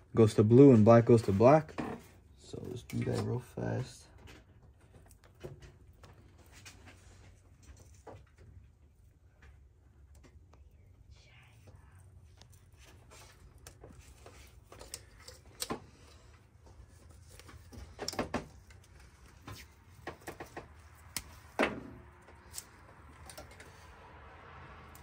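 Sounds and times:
low steady hum: 0.0s - 25.0s
clicks and taps of wire connectors: 12.4s - 23.8s.

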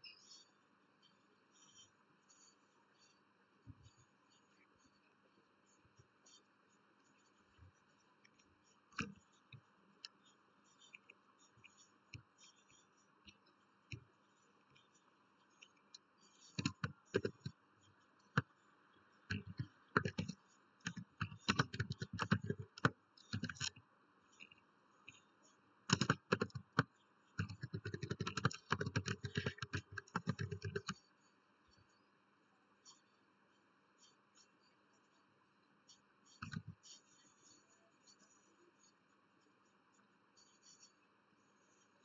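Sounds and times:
computer keyboard typing: 14.7s - 17.6s, 19.2s - 23.8s, 25.9s - 31.0s.

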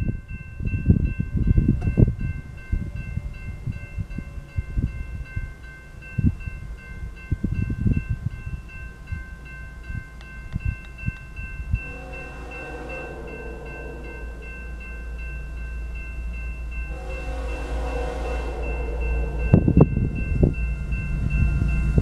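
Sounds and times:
low train rumble: 0.0s - 22.0s
railroad crossing bell ringing: 0.0s - 22.0s
train horn blast: 11.7s - 15.2s, 16.8s - 20.6s.

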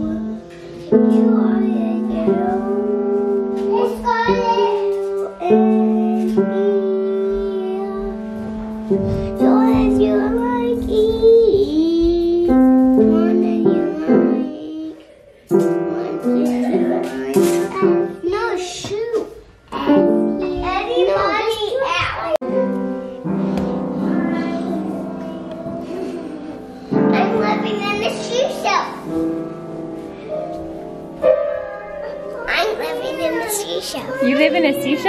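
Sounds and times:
child singing in a high voice: 0.0s - 22.4s
piano notes ringing: 0.0s - 35.0s.

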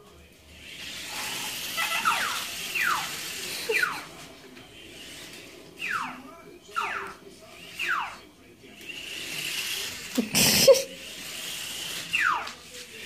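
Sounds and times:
small animal squealing: 1.1s - 3.1s, 5.8s - 6.2s, 6.8s - 7.2s.

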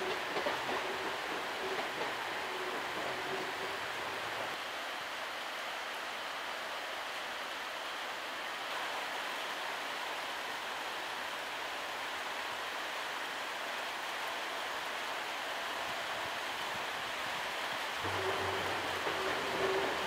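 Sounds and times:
rain hissing on platform: 0.0s - 20.0s.

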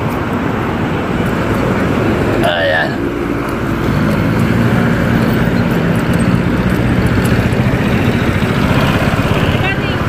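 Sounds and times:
cars passing close by: 0.0s - 10.0s
wind rumble on microphone: 3.7s - 10.0s.

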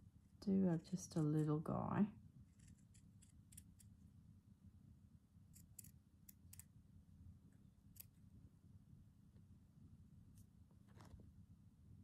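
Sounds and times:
small scissors snipping fabric: 5.5s - 6.7s.

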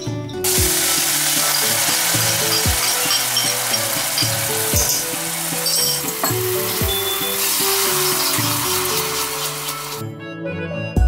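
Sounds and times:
onion frying in hot oil: 0.4s - 10.0s.

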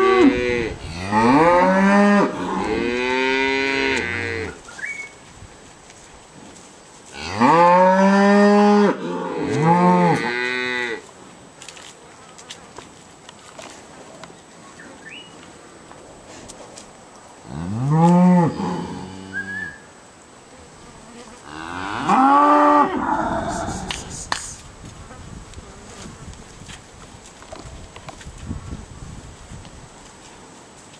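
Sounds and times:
cattle mooing: 0.0s - 4.6s, 21.5s - 23.9s.

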